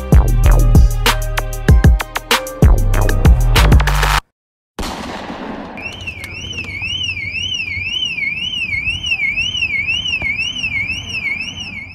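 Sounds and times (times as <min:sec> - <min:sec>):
car alarm sweeping tone: 0:05.8 - 0:11.9.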